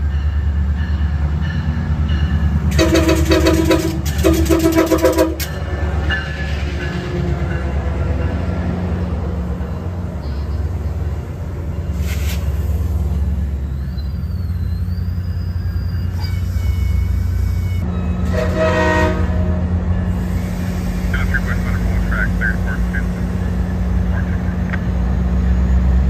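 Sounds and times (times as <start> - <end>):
locomotive engine drone: 0.0 - 26.0
train wheels rumbling on rails: 0.0 - 26.0
train horn: 2.7 - 5.6, 16.2 - 20.4.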